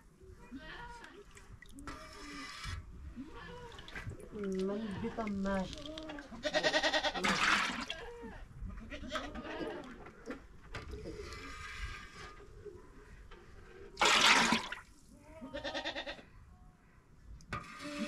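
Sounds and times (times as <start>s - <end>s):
goats bleating: 6.2s - 7.3s, 8.2s - 10.0s, 15.3s - 16.2s
liquid pouring into metal can: 14.0s - 14.8s.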